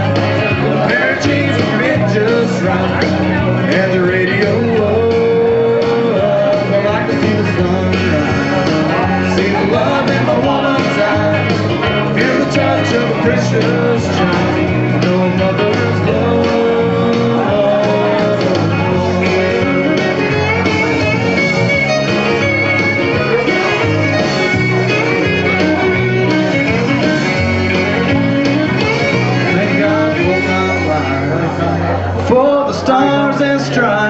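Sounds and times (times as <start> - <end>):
man singing into microphone: 0.0 - 21.1, 28.9 - 34.0
country backing track with guitars: 0.0 - 34.0.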